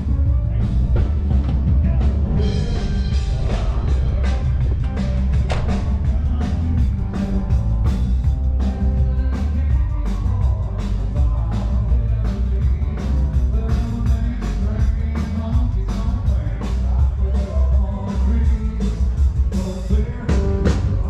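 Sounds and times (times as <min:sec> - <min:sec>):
rock and roll music with singing: 0:00.0 - 0:21.0.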